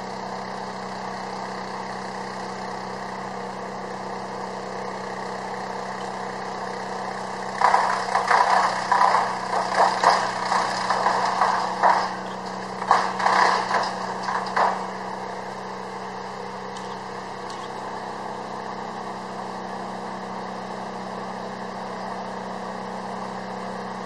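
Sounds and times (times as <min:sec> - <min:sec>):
machinery humming: 0:00.0 - 0:24.0
irregular mechanical noises: 0:07.4 - 0:15.6, 0:16.7 - 0:17.9.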